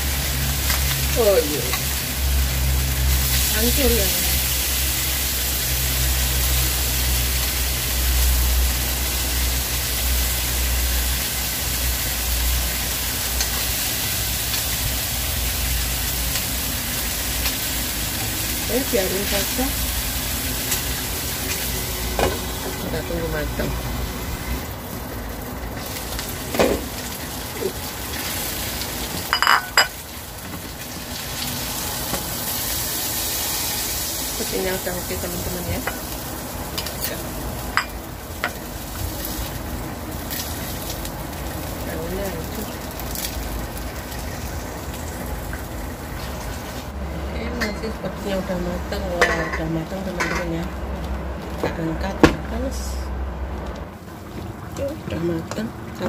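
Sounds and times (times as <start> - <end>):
fish sizzling in a pan: 0.0 - 47.0.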